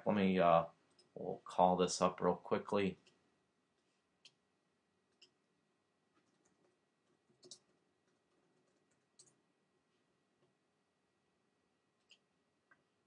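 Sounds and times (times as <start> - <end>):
faint keyboard keystrokes: 6.2 - 9.4.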